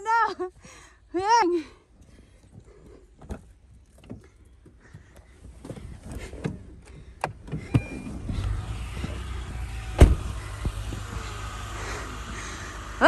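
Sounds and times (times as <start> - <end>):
knocks and clunks from a car: 3.2 - 11.2.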